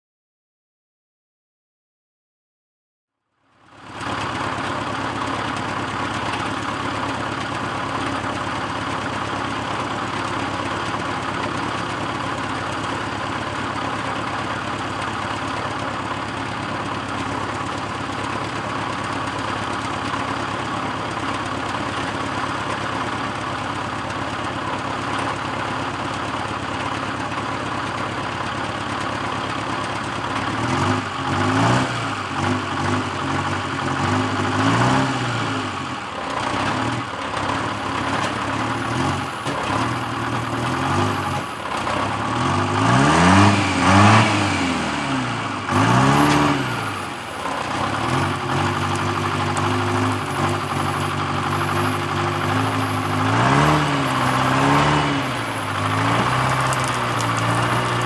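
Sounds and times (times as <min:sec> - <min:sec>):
diesel engine idling: 0:03.6 - 0:58.0
engine revving unevenly: 0:30.4 - 0:58.0.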